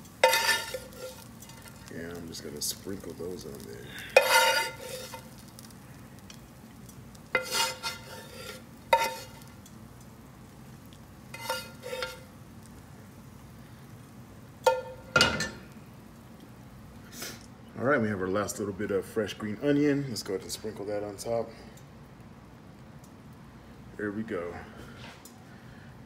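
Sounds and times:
metal spoon scraping a frying pan: 0.0 - 1.9, 4.0 - 5.7, 7.3 - 9.5, 11.3 - 12.3.

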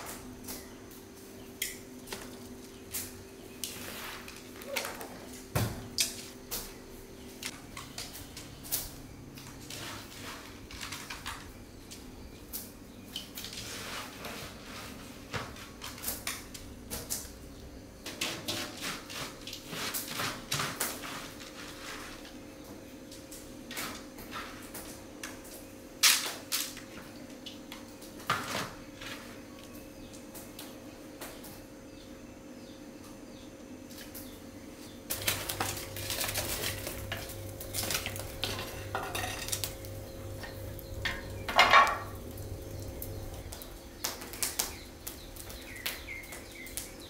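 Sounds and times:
faint steady hum: 20.5 - 47.0.

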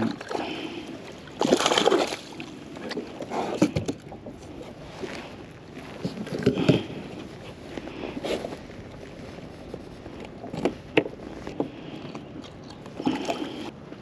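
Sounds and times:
water splashing: 0.0 - 5.1
fish thrashing: 0.0 - 5.4, 10.0 - 13.8.

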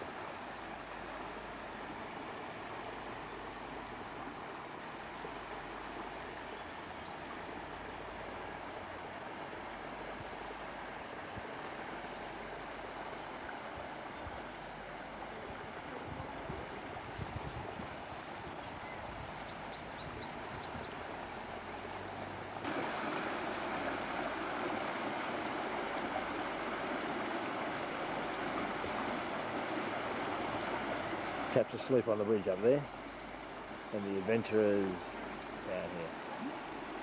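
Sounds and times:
river rushing over rocks: 20.8 - 37.0.

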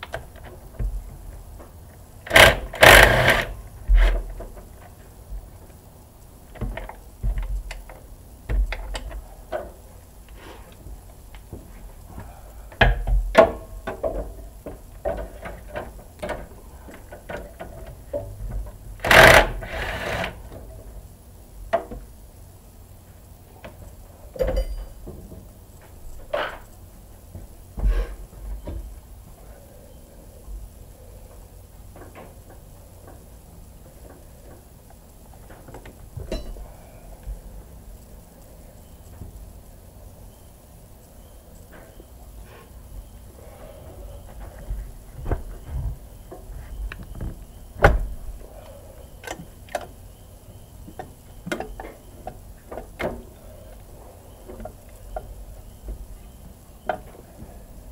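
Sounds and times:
loud noisy clatter: 2.3 - 4.1, 19.0 - 20.4.

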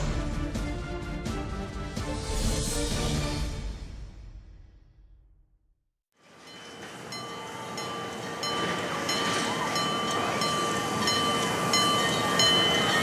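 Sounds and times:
crossing signal bell ringing: 6.2 - 13.0.

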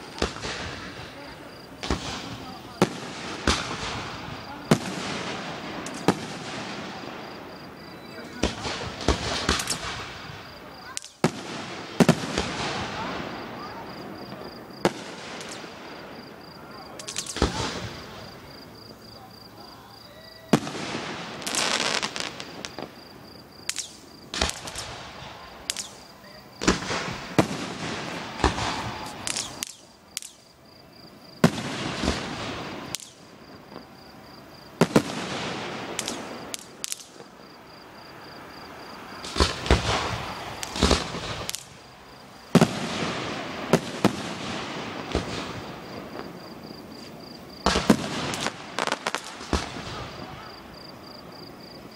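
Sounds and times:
firework shells bursting: 0.0 - 19.5, 20.3 - 30.8, 31.4 - 51.6
firework crackle: 0.0 - 51.9.

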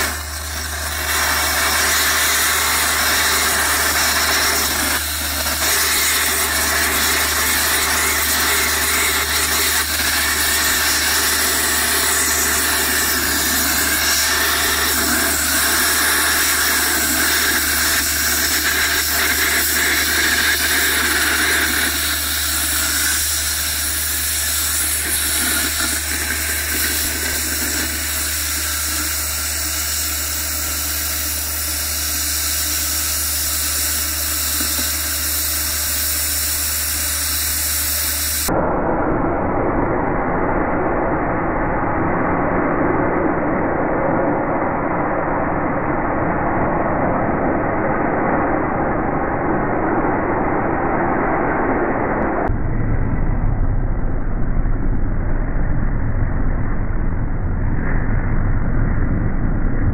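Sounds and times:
oxygen lance hissing: 0.0 - 38.5
low hum: 0.0 - 59.9.

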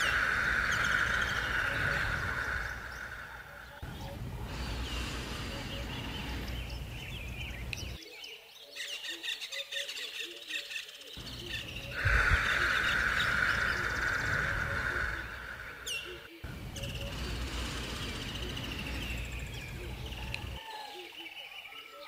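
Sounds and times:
low rumble: 0.0 - 8.0
steady hiss: 0.0 - 8.0, 11.2 - 20.6
birds chirping and calling: 0.0 - 22.0.

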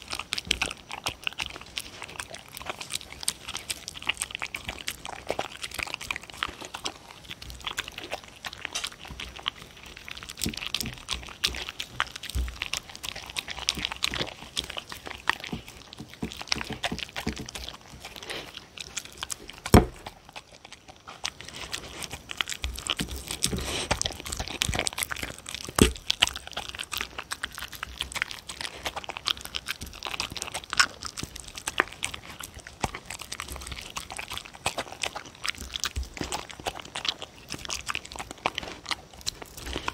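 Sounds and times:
dog chewing and licking: 0.0 - 39.9.

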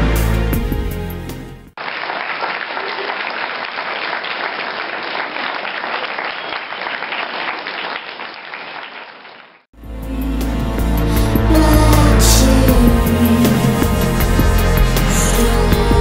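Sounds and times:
audience applauding: 1.8 - 9.6.

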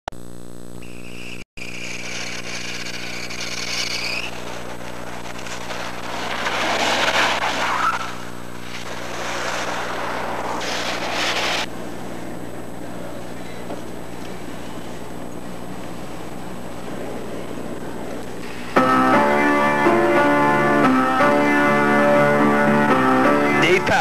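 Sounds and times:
steady low hum: 0.1 - 22.7
thin high whine: 0.2 - 24.0
minivan driving on snowy road: 4.4 - 11.7.

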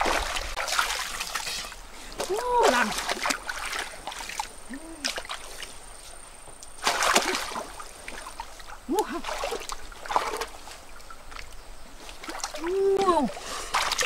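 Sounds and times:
brief vocal sounds: 4.7 - 5.2
hands splashing in water: 6.8 - 8.4, 9.0 - 11.5, 12.1 - 14.0.

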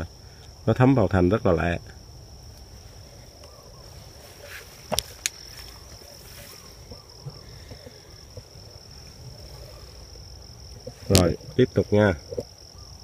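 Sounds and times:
insects trilling: 0.0 - 13.0.

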